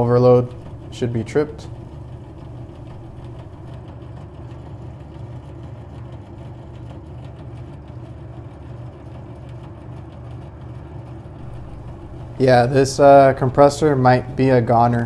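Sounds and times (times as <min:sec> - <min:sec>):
machinery humming: 0:00.0 - 0:03.8, 0:11.4 - 0:15.0.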